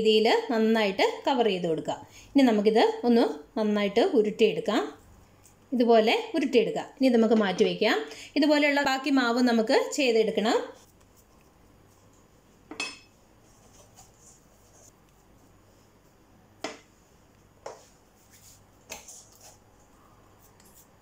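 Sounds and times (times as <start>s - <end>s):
kitchenware clinking: 12.7s - 13.1s.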